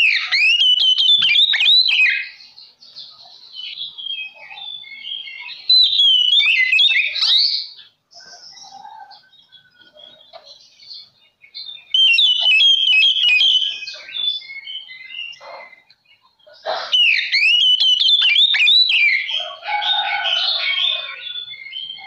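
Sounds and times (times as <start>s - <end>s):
bird harsh chattering: 0.0s - 2.4s, 11.8s - 15.9s, 16.5s - 19.3s
songbird whistling: 0.0s - 2.4s, 3.4s - 22.0s.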